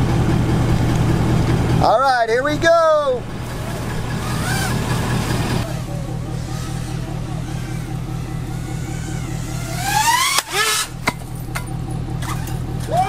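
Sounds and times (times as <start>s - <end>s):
low engine hum: 0.0s - 13.0s
drone motors whining: 3.1s - 13.0s
sharp crack: 3.3s - 11.7s.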